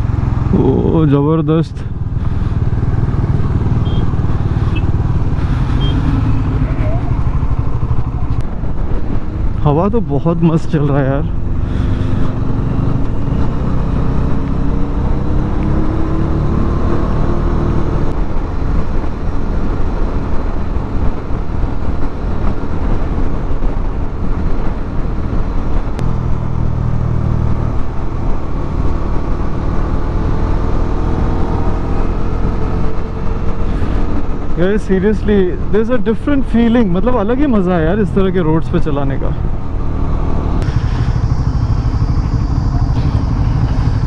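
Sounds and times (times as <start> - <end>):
motorcycle engine running: 0.0 - 1.1, 1.8 - 8.6, 40.3 - 44.0
wind rush on microphone: 2.0 - 10.2, 17.7 - 34.7.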